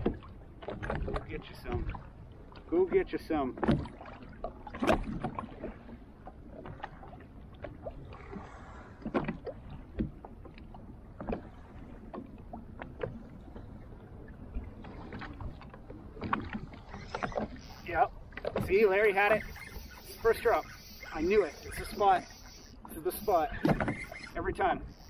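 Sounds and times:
small splashes and knocks: 0:00.0 - 0:02.7, 0:03.5 - 0:13.7, 0:14.5 - 0:17.7, 0:18.3 - 0:18.9
low wash of water: 0:00.0 - 0:24.2
light wind: 0:00.0 - 0:25.0
waves lapping against hull: 0:00.0 - 0:25.0.

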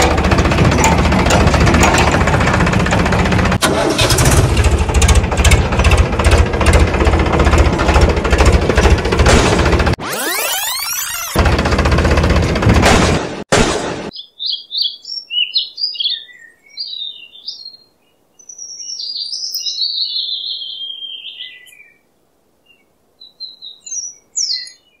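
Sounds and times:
small birds chirping: 0:14.1 - 0:25.0.

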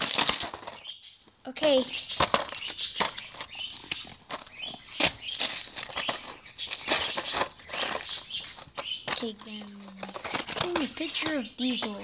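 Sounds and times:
plastic packaging crinkling: 0:00.0 - 0:01.1, 0:01.9 - 0:12.0.

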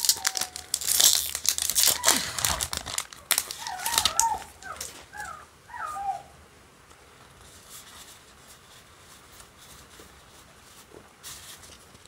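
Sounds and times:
foil pack crinkling and tearing: 0:00.0 - 0:05.2.

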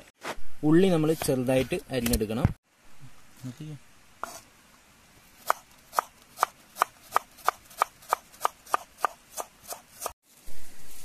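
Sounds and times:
knife chopping on wooden board: 0:05.4 - 0:10.2.

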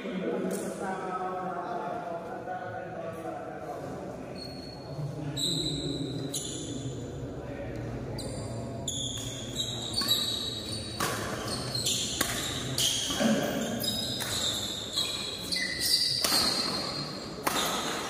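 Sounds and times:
shoes squeaking on court floor: 0:04.3 - 0:06.8, 0:08.1 - 0:18.0.

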